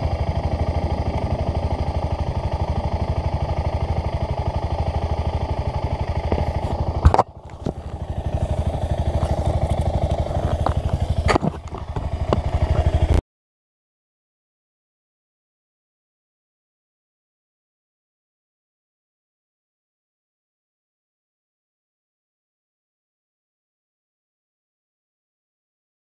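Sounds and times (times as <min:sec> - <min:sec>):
motorcycle engine running: 0:00.0 - 0:13.2.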